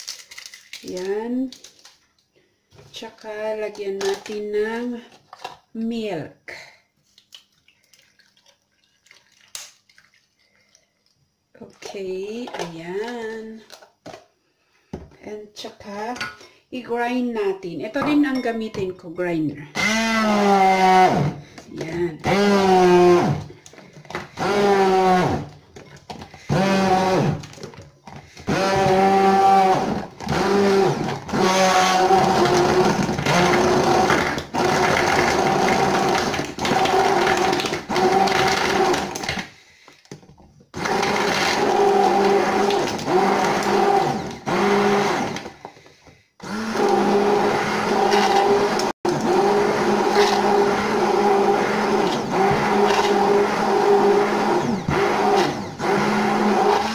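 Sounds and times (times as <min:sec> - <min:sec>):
immersion blender motor whining: 0:19.8 - 0:25.6, 0:26.2 - 0:39.4, 0:40.7 - 0:45.6, 0:46.4 - 0:56.9.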